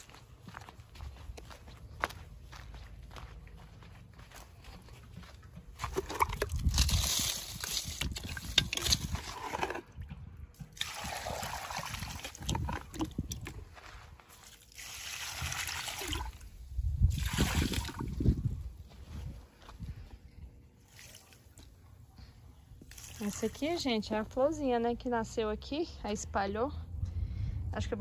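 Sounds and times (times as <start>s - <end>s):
water splashing from bucket: 5.8s - 13.5s, 14.4s - 18.4s, 20.8s - 21.6s, 22.9s - 23.8s.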